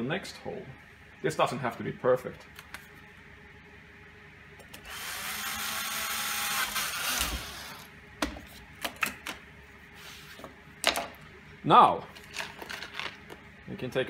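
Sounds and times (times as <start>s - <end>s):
cordless drill motor whining: 4.8s - 7.9s.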